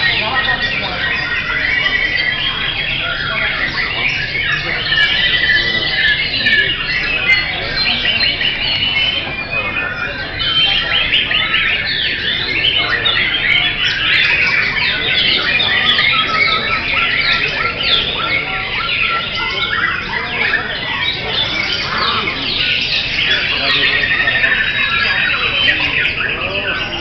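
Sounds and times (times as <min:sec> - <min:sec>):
chorus of songbirds singing: 0:00.0 - 0:27.0.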